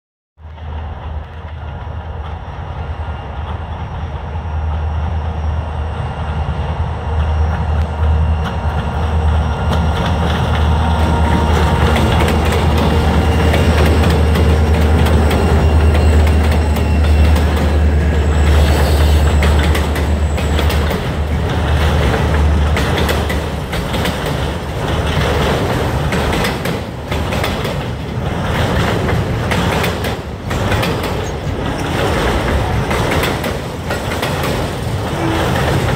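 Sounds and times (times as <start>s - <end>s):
locomotive engine drone: 0.4s - 35.9s
freight cars rumbling over rail joints: 7.2s - 35.9s.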